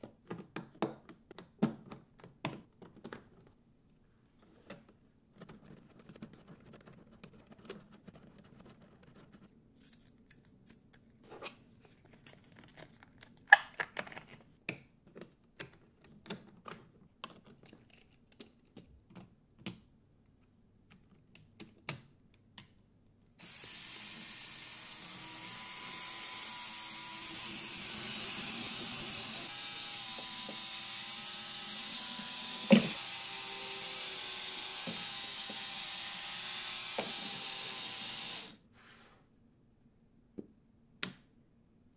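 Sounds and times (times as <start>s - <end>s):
electric motors and gears whirring: 23.4s - 38.6s.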